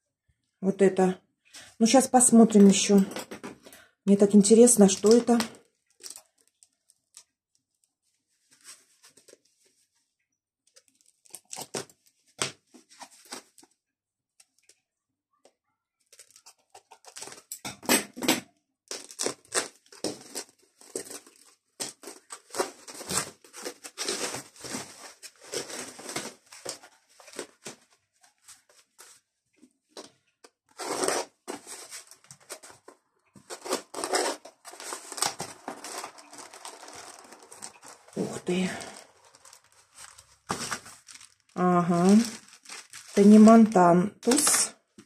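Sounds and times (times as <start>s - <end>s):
paper wrapping crackling: 4.8s - 9.9s, 10.7s - 13.7s, 16.1s - 17.5s, 18.9s - 29.3s, 30.7s - 45.0s
foam sheet rustling and crinkling: 8.1s - 10.0s, 18.9s - 29.3s, 30.7s - 44.7s.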